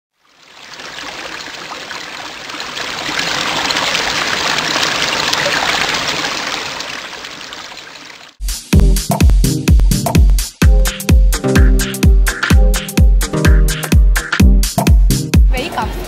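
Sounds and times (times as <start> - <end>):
rushing trickling water: 0.1 - 8.4
electronic dance music: 8.4 - 16.0.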